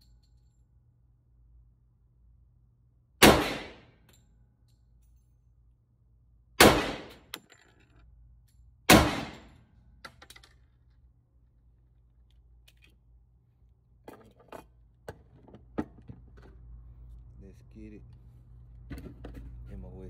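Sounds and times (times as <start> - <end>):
pistol shots indoors: 3.2 - 4.8, 6.5 - 7.4, 8.8 - 10.1.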